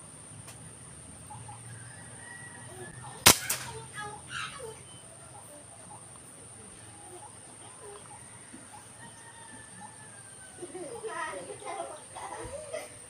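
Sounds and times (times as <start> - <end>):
rifle shot: 3.2 - 3.9
small crack: 3.2 - 3.9.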